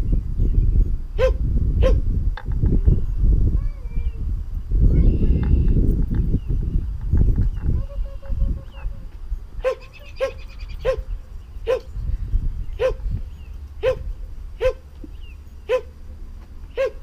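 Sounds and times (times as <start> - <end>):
wind rumbling on microphone: 0.0 - 17.0
dog barking high-pitched: 1.2 - 2.0, 9.6 - 11.9, 12.8 - 13.0, 13.8 - 14.8, 15.7 - 15.9, 16.7 - 17.0.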